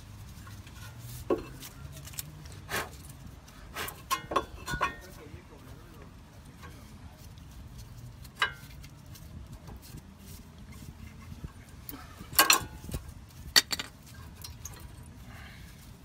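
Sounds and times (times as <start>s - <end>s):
metal brake pads clinking: 4.0s - 5.2s, 8.2s - 9.0s, 12.0s - 14.7s
sharp metal clatters: 12.3s - 14.7s.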